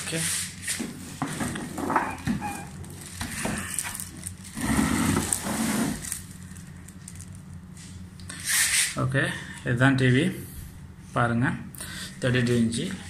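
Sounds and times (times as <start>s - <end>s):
plastic wrapping crinkling: 2.2s - 7.6s.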